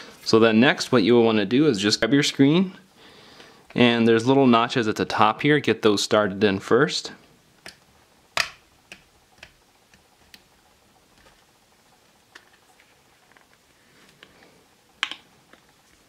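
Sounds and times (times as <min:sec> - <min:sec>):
fingers clicking and tapping phone: 0:08.4 - 0:10.5.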